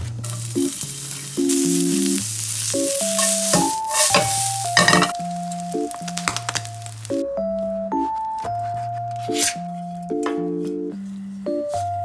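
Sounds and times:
light background music: 0.0s - 12.0s
sizzling in a hot pan: 0.2s - 7.2s.

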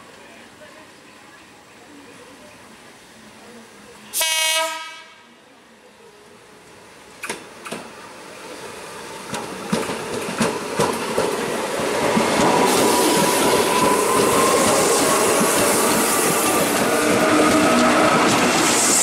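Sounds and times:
train wheels rumbling on rails: 6.7s - 19.0s
train wheels clacking over joints: 9.2s - 19.0s.

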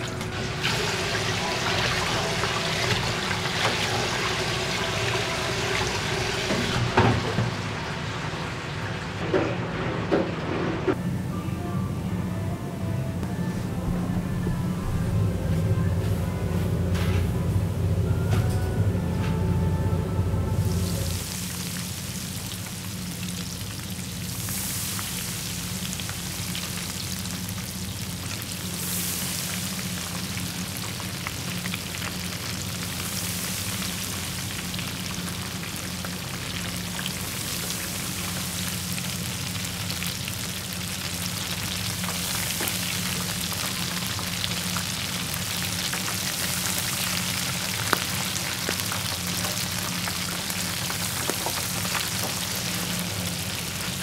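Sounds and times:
shrimp sizzling in hot oil: 0.3s - 9.2s, 20.7s - 54.0s
low steady hum: 10.9s - 54.0s.

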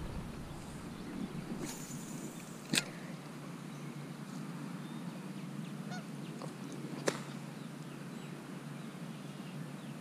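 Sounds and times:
low rumble: 0.0s - 2.4s.

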